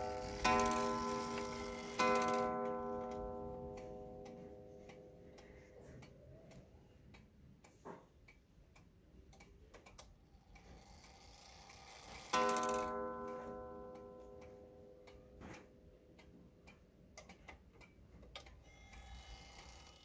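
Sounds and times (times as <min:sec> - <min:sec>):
clock gong ringing: 0:00.0 - 0:04.8, 0:12.3 - 0:14.8
clock ticking softly: 0:00.0 - 0:20.0.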